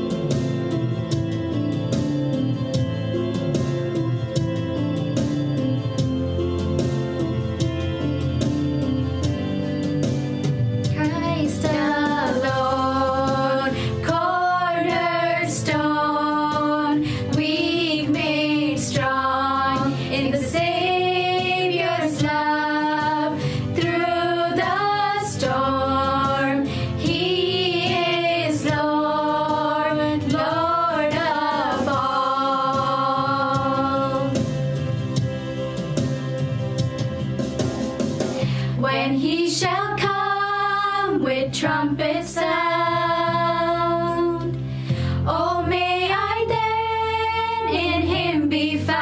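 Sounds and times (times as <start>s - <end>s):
instrumental accompaniment: 0.0s - 49.0s
women singing with vibrato: 11.0s - 34.5s, 38.6s - 44.6s, 45.2s - 49.0s.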